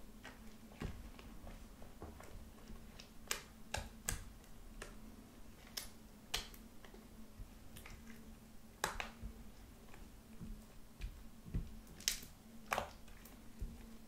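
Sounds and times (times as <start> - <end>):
slime wet pops and clicks: 8.8 - 9.2.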